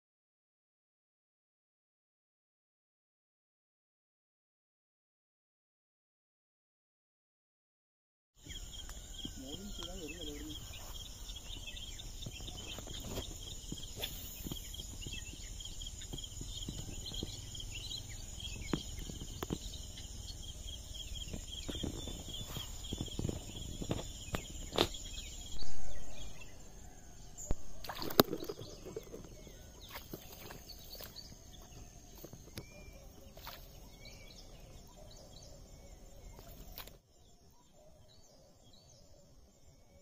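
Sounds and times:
continuous high whine: 8.4 - 40.0
insects chirping: 8.4 - 40.0.

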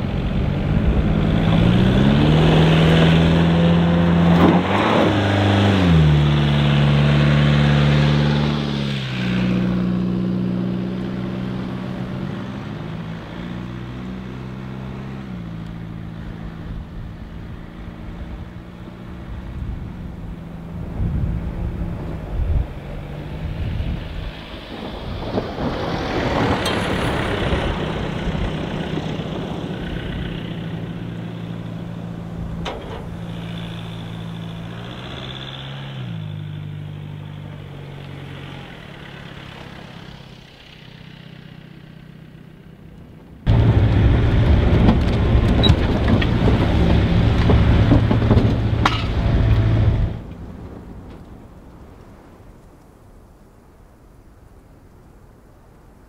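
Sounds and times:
van engine running: 0.0 - 25.4, 26.2 - 51.9
tyres on gravel and sand: 0.0 - 56.0.

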